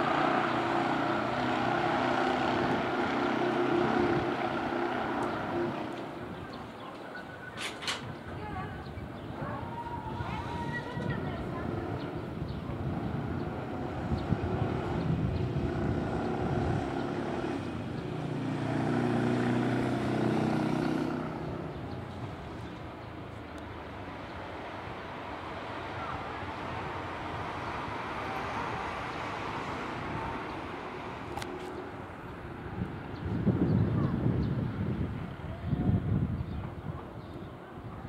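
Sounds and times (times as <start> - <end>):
vehicle engine passing: 0.0 - 6.4, 11.4 - 22.6.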